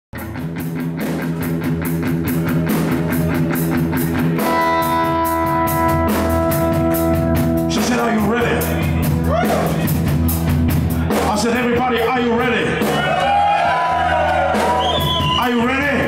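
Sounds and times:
bass guitar: 0.1 - 16.0
electric guitar: 0.2 - 11.3
drum kit cymbal beat: 0.2 - 16.0.

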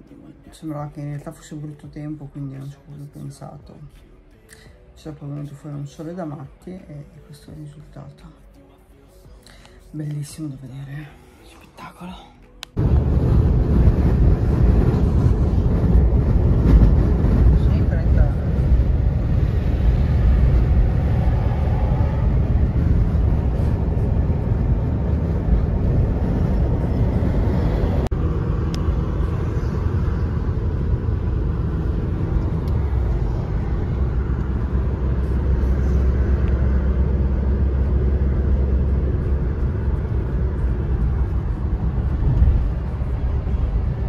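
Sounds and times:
car engine and tyre noise: 12.6 - 44.0.

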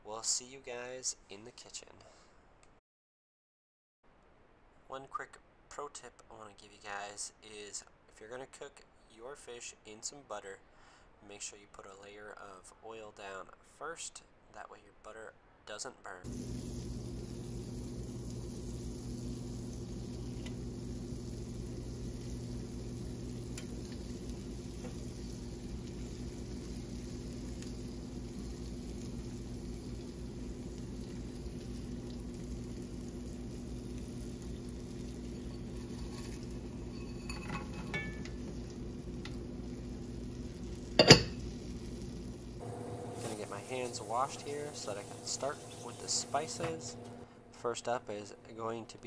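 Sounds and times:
steady low hum: 16.2 - 49.0
fish sizzling in a skillet: 16.3 - 47.2
dishes clanking: 35.5 - 38.4, 41.0 - 41.4.

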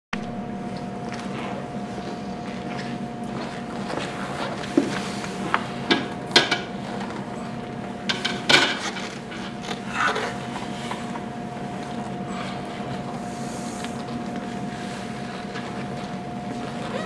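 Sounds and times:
steady background hum: 0.2 - 17.0.

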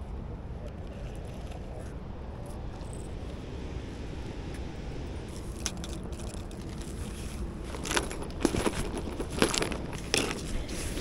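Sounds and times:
wind rumble on microphone: 0.0 - 11.0
crunching and scraping clicks: 5.5 - 11.0.

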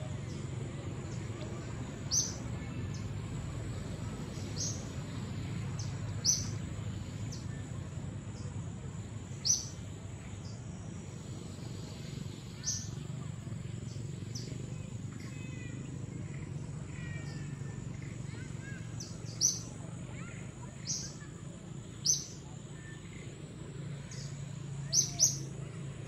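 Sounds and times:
low background noise: 0.0 - 26.0
bird chirping: 2.1 - 3.1, 4.3 - 5.0, 5.7 - 7.6, 9.3 - 10.6, 12.6 - 13.0, 16.3 - 21.3, 21.9 - 23.2, 24.0 - 25.5
high insect tone: 2.1 - 7.5, 8.2 - 19.7.

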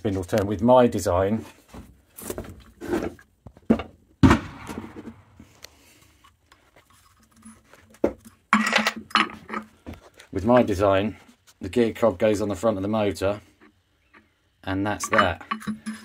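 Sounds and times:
metal clinks and scrapes on workbench: 6.9 - 9.7, 15.0 - 16.0.

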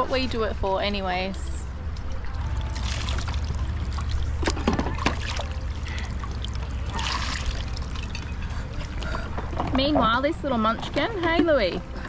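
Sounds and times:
river water running: 0.0 - 9.6
water splashes: 2.2 - 9.0.

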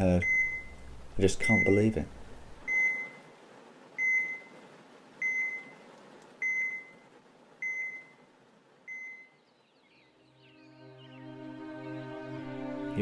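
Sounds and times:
patient monitor beeping: 0.2 - 0.8, 1.4 - 2.0, 2.7 - 3.2, 4.0 - 4.5, 5.2 - 5.8, 6.4 - 7.0, 7.6 - 8.2, 8.9 - 9.4.

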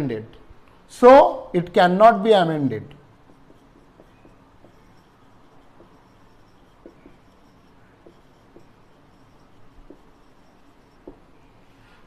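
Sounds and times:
marker pen writing on whiteboard: 2.9 - 12.0.

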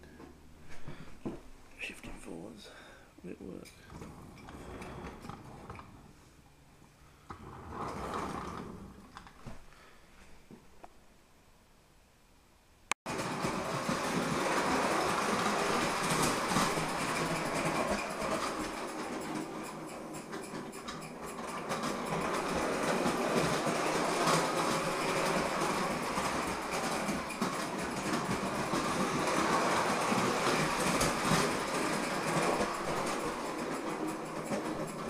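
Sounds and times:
toy train wheels clattering: 13.1 - 35.0.

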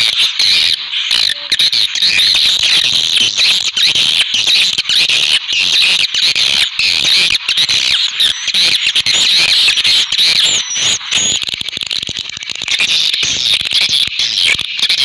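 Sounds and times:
small birds twittering: 0.0 - 15.0
whistled call: 7.0 - 12.0.

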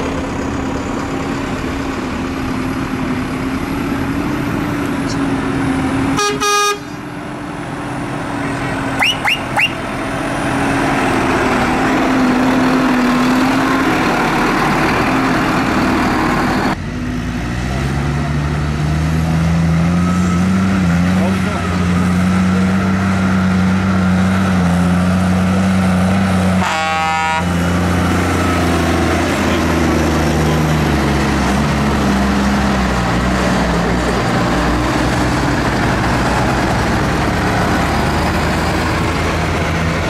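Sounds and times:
tractor diesel engines running: 0.0 - 40.0
vehicle horn: 6.2 - 7.0, 26.6 - 27.6
short high chirps: 9.0 - 9.8.

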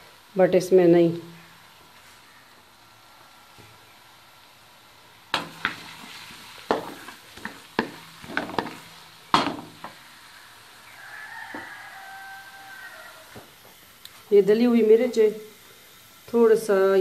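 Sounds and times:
onions sizzling in oil: 0.0 - 17.0
spatula knocking and scraping pan: 5.4 - 10.0.

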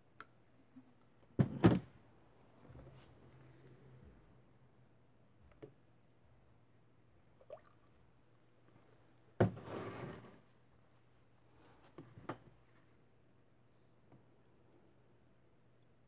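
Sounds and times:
plastic scraping on counter: 9.4 - 10.4.

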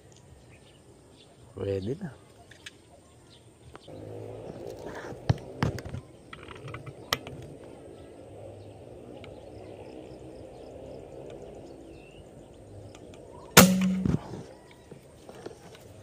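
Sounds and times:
air rifle shot: 13.6 - 14.4.

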